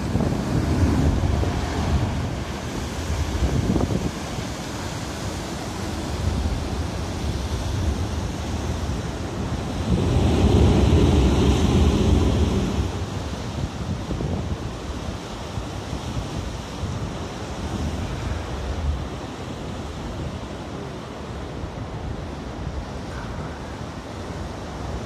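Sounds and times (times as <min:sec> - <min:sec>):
sea waves breaking on rocks: 0:00.0 - 0:14.6
wind buffeting microphone: 0:00.0 - 0:19.2.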